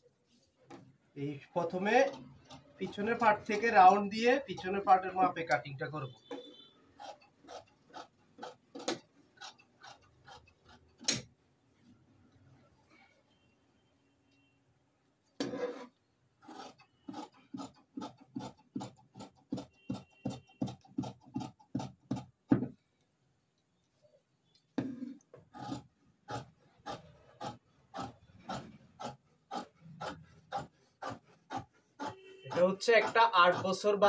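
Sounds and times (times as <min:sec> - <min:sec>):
knock: 0:22.1 - 0:22.8
shears cutting cloth: 0:25.5 - 0:34.0.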